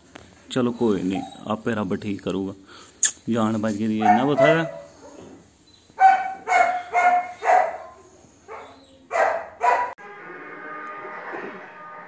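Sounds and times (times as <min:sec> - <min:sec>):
dog barking: 0:04.0 - 0:05.3, 0:06.0 - 0:10.0
background music: 0:10.0 - 0:12.0.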